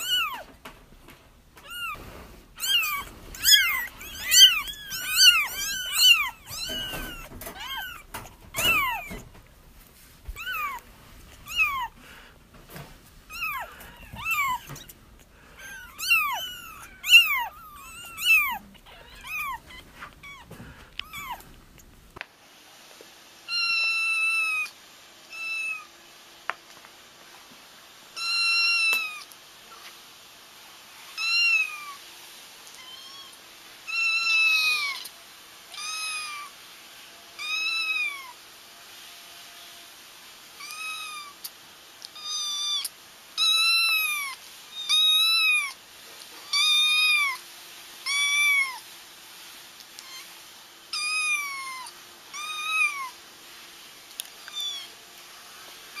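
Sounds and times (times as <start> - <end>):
kittens mewing: 0.0 - 0.6, 1.6 - 9.5, 10.2 - 22.1.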